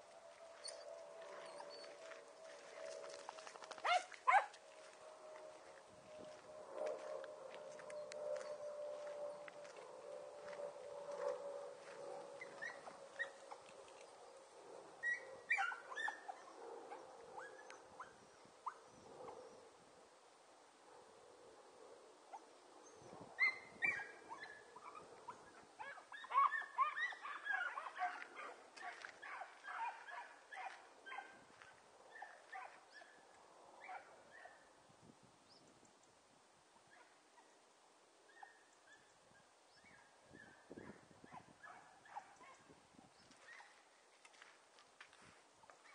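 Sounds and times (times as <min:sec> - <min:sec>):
dogs yelping: 0:00.3 - 0:19.5, 0:23.4 - 0:33.2.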